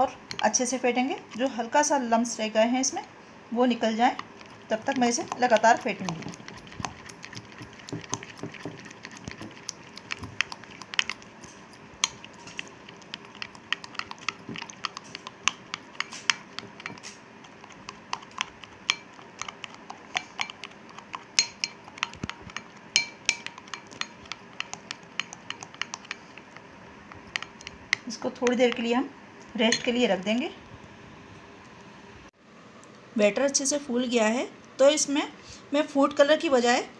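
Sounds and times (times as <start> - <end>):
spoon clinking against glass bowl: 18.8 - 19.6, 20.2 - 20.7, 21.3 - 26.3, 29.7 - 30.0.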